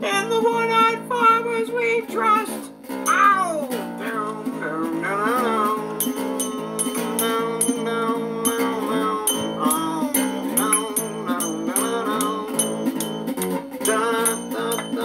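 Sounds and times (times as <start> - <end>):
gliding melody line: 5.8 - 15.0
sharp high ticks: 5.9 - 15.0.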